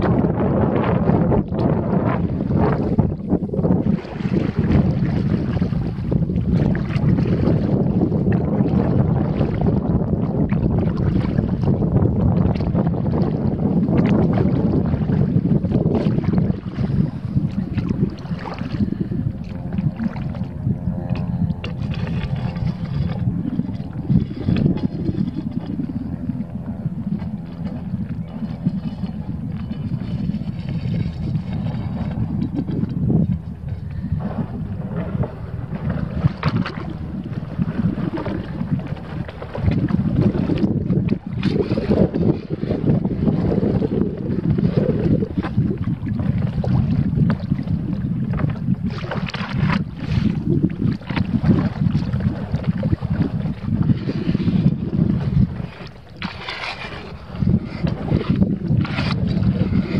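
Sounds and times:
paddle strokes splashing water: 0:00.0 - 0:59.9
wind buffeting microphone: 0:00.0 - 0:59.9.

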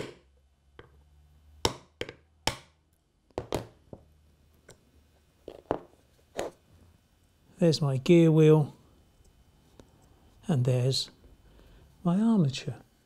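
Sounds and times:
knocks and clicks of parts handled: 0:01.7 - 0:04.8.

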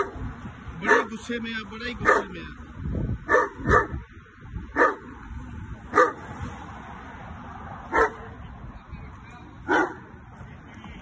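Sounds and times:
dog barking angrily: 0:00.0 - 0:00.2, 0:00.8 - 0:01.2, 0:02.0 - 0:02.4, 0:03.2 - 0:04.0, 0:04.7 - 0:05.1, 0:05.9 - 0:06.3, 0:07.9 - 0:08.3, 0:09.7 - 0:10.1.

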